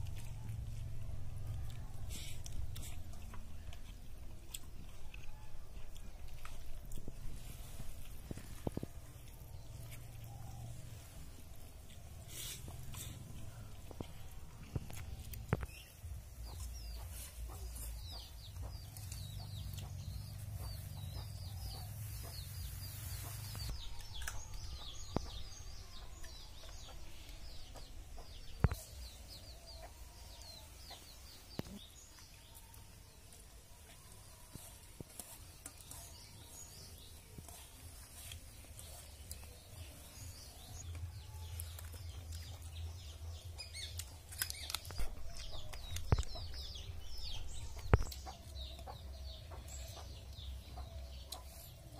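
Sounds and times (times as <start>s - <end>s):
chickens clucking: 11.0s - 32.3s, 42.3s - 51.9s.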